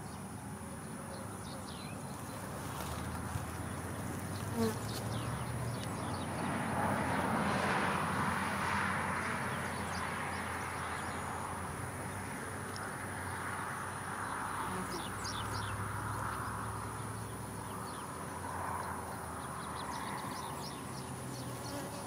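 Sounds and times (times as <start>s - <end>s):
bee swarm buzzing: 2.3s - 5.6s, 21.3s - 22.0s.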